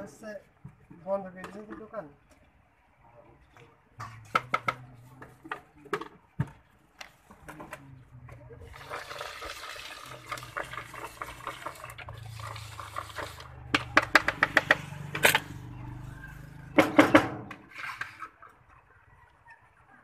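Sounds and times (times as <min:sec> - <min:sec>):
puffed rice rattling in plastic mug: 0:08.7 - 0:14.6.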